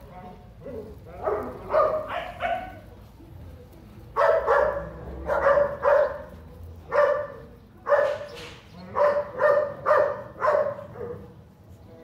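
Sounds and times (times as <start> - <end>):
dog barking: 0.6 - 2.8, 4.2 - 6.3, 6.9 - 11.3.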